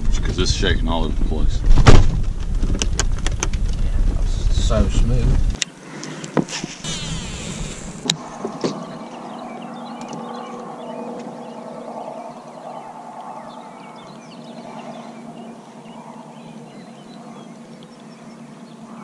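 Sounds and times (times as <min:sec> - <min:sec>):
steady low hum: 0:00.0 - 0:19.0
bird chirps: 0:06.8 - 0:19.0.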